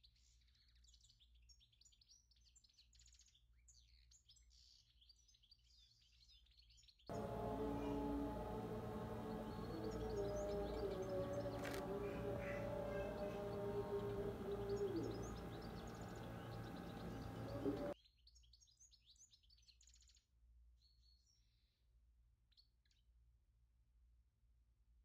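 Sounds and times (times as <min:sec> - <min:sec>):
background music with held notes: 0:07.1 - 0:18.0
birds chirping: 0:07.1 - 0:18.0.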